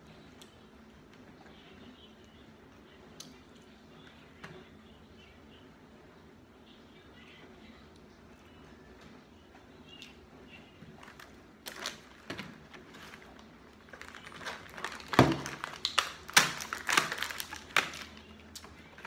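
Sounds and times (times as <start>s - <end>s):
plastic packaging crinkling: 11.0s - 19.0s.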